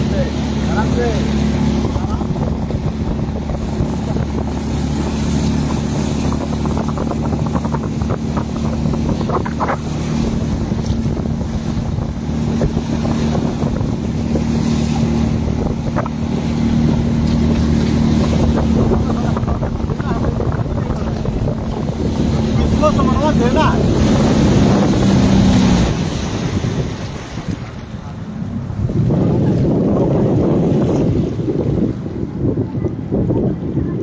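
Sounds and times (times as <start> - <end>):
wake spray rushing: 0.0 - 32.4
motorboat engine running: 0.0 - 34.0
wind on microphone: 0.0 - 34.0.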